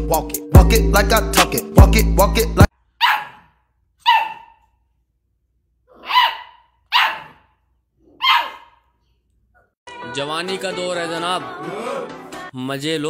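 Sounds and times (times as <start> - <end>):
music with a beat: 0.0 - 2.7
puppy barking high-pitched: 3.0 - 4.8, 5.9 - 8.9.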